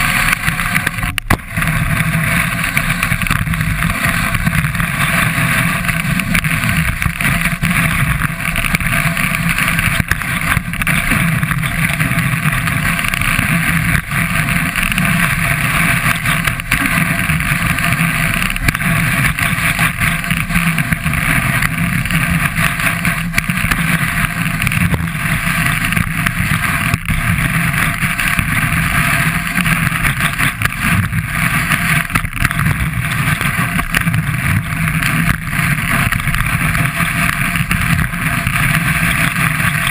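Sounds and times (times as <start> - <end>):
skis rushing over snow: 0.0 - 39.9
small clicks and knocks: 0.2 - 14.1.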